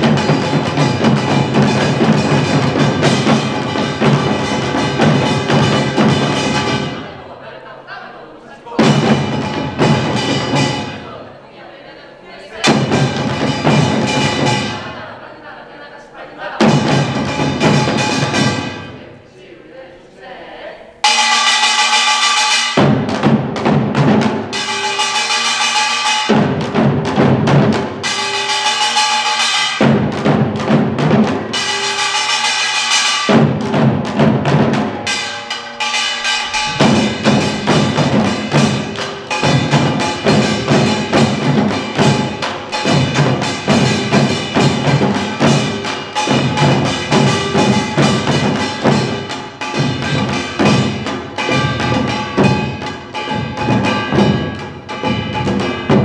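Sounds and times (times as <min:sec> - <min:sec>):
drum ensemble in fast rhythm: 0:00.0 - 0:19.3, 0:20.9 - 0:56.0
steady ringing: 0:31.3 - 0:56.0.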